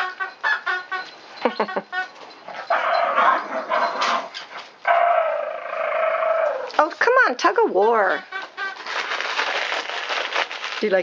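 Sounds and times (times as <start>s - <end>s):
small dogs yipping and barking: 0.0s - 5.2s.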